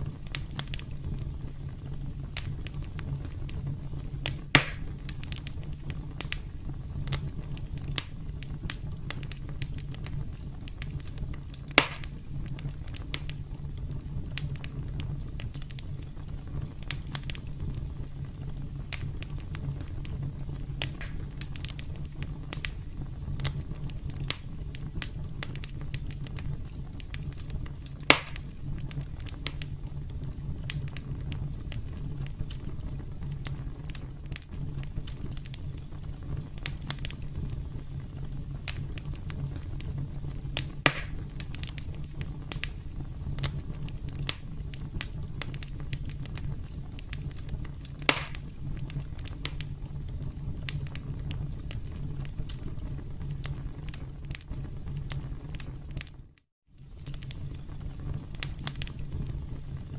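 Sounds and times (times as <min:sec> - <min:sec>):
campfire crackling: 0:00.0 - 0:56.2, 0:56.8 - 0:59.9
loud fire pops: 0:00.0 - 0:59.9.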